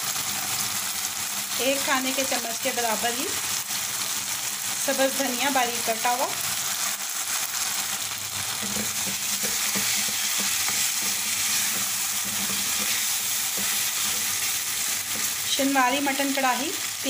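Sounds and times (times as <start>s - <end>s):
meat sizzling in oil: 0.0s - 17.0s
wooden spoon knocking a pan: 8.6s - 15.4s.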